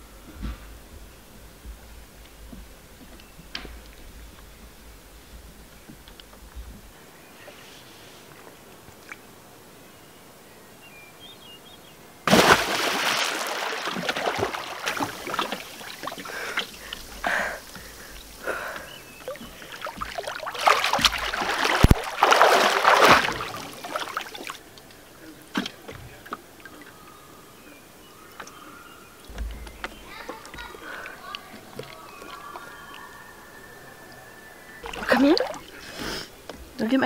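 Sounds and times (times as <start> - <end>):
water splashing from swimming: 12.3 - 27.2, 29.2 - 33.6, 34.7 - 36.8.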